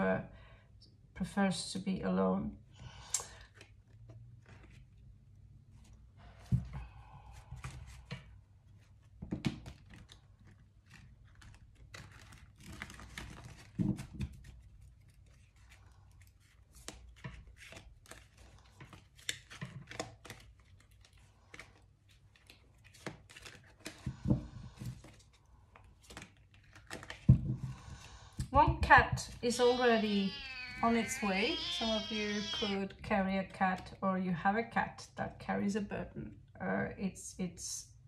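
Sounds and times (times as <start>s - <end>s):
cards shuffling: 3.5s - 4.9s, 9.6s - 24.0s, 24.9s - 27.3s.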